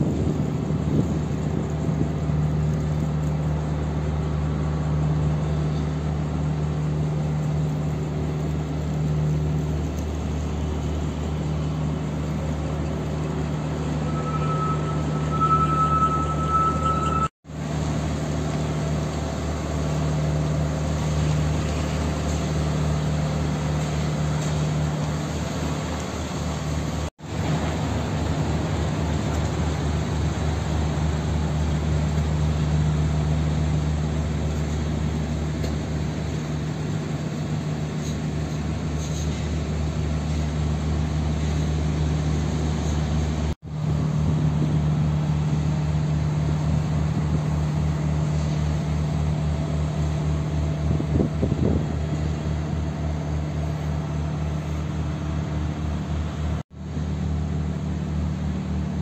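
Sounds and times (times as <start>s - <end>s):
city street traffic hum: 0.0s - 59.0s.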